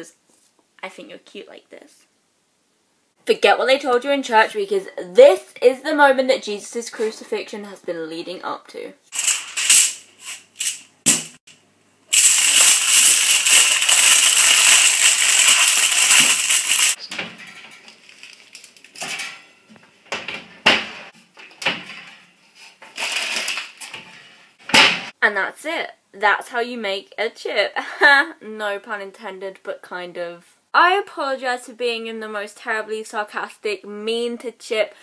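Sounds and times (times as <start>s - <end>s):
aluminium foil crinkling: 9.2s - 10.0s, 12.1s - 17.0s, 17.7s - 19.0s, 22.9s - 23.9s.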